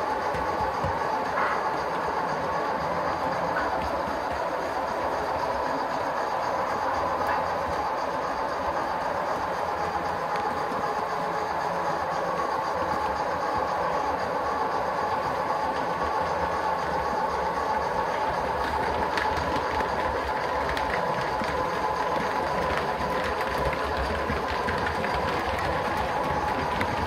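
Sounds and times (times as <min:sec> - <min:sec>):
model train whirring: 0:00.0 - 0:27.0
wheels clicking on rails: 0:00.0 - 0:27.0.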